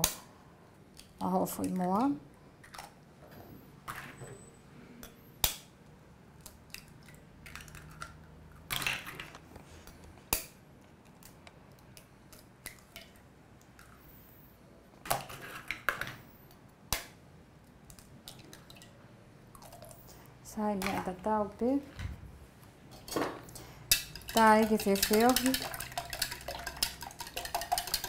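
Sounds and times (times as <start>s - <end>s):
spoon tapping eggshells: 23.9s - 28.0s.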